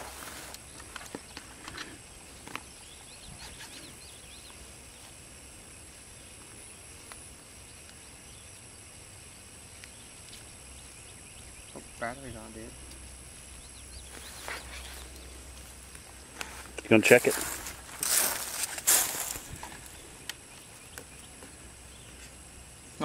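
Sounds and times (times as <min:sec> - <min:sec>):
faint chirps: 0:00.0 - 0:23.0
high-pitched insect drone: 0:00.0 - 0:23.0.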